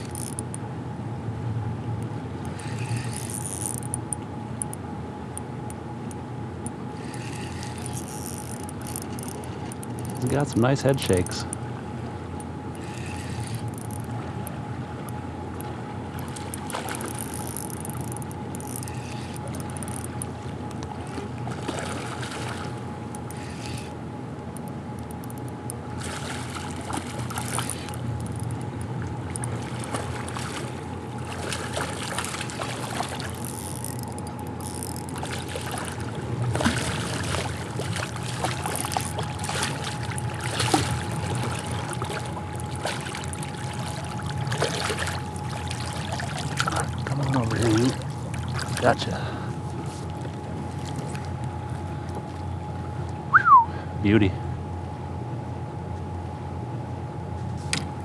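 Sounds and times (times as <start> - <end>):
faint steady whine: 0.0 - 58.0
river water rushing and lapping: 2.3 - 3.9, 6.9 - 24.0, 25.8 - 53.6
fish thrashing at the surface: 16.3 - 17.5, 21.0 - 22.8, 26.0 - 28.0, 29.5 - 34.1, 35.0 - 49.0.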